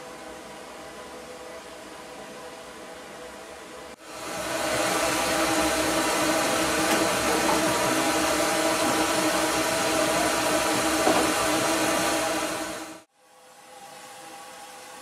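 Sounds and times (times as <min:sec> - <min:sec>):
steam hissing: 0:04.0 - 0:15.0.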